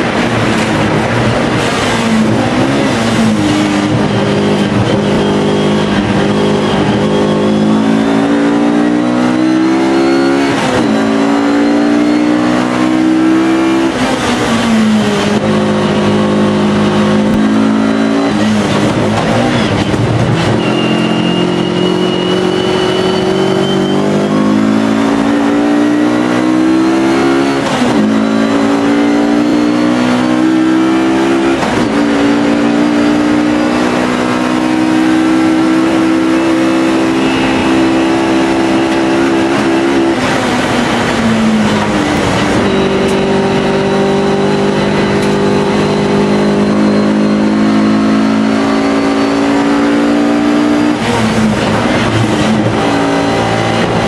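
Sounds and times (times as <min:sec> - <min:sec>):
race car engine accelerating: 0:00.0 - 0:54.0.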